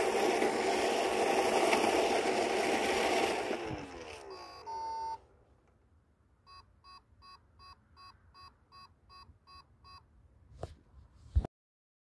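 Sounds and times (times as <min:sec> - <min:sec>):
robot vacuum beeping: 0:00.0 - 0:05.2.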